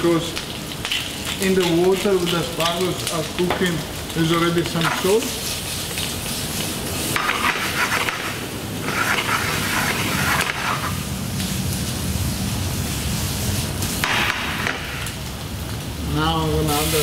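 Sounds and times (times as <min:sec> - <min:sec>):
prawns sizzling in oil: 0:00.0 - 0:17.0.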